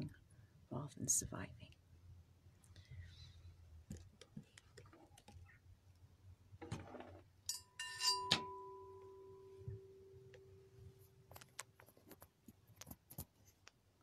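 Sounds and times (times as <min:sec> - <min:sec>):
metal jangle: 0:07.5 - 0:09.4
metal percussion strike ringing: 0:07.5 - 0:10.2
handling clicks and rustles: 0:10.3 - 0:13.8.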